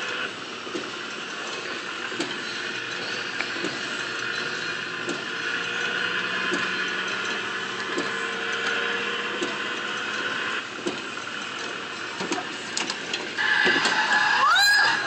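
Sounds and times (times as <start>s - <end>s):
upward sweeping electronic tone: 13.4s - 15.0s.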